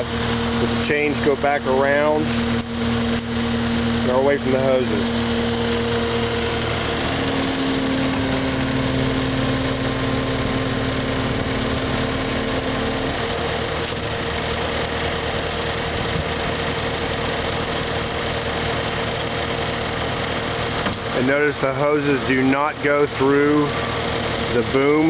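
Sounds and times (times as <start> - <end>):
diesel engine running: 0.0 - 25.0
hydraulics working: 0.0 - 25.0
steady hum: 0.0 - 25.0.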